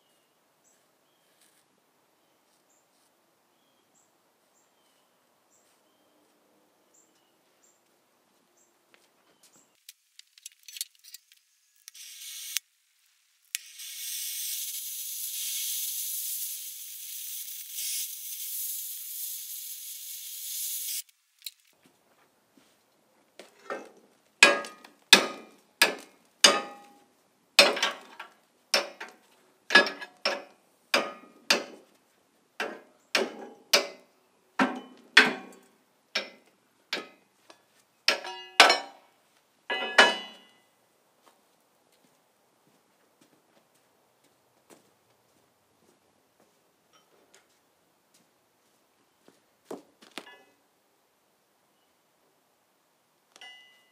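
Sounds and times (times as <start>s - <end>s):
steady hiss: 9.8s - 21.7s
steel bar striking steel frame: 24.4s - 27.0s, 27.6s - 29.1s, 29.7s - 31.8s, 32.6s - 36.4s, 38.1s - 39.0s, 39.7s - 40.5s.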